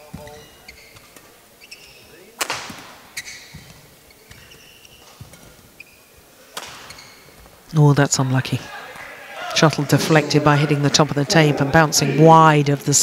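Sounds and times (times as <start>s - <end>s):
shoes squeaking on court: 0.0s - 7.6s.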